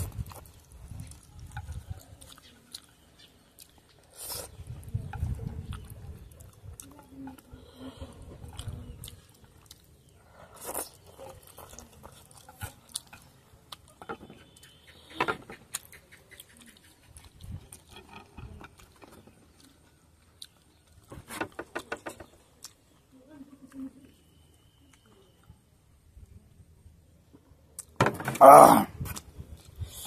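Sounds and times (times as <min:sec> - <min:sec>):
person slurping and chewing noodles: 0:10.5 - 0:13.4.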